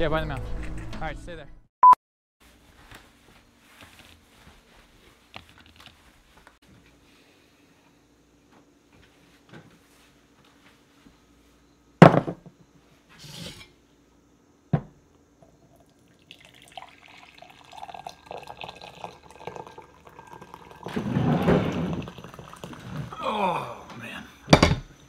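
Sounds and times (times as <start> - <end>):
knocks on a counter: 12.0 - 12.5, 14.7 - 15.0
coffee pouring into a mug: 15.4 - 23.1.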